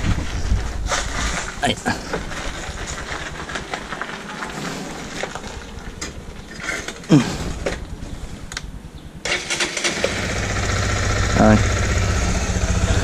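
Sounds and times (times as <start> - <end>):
tyres crunching on gravel: 0.0 - 8.3.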